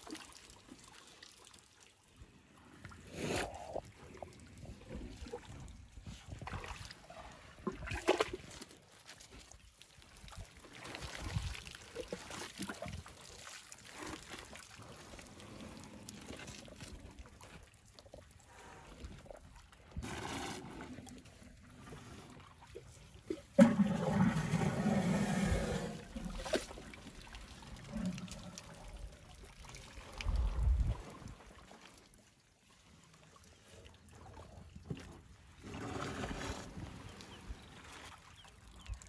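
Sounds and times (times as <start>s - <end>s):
gush of water: 23.6s - 31.0s
water trickling and dripping: 26.1s - 34.9s.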